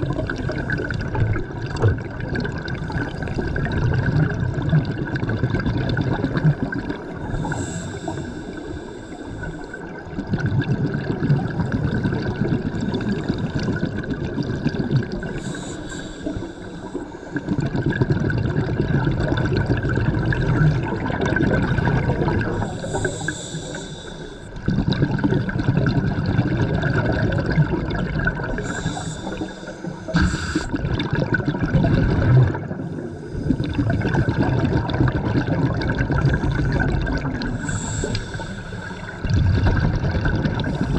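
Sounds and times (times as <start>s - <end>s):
exhaled bubbles rumbling: 0.0s - 40.9s
regulator hiss on inhale: 7.3s - 9.8s, 15.2s - 17.4s, 22.6s - 24.6s, 28.6s - 30.8s, 32.8s - 34.4s, 37.5s - 39.2s.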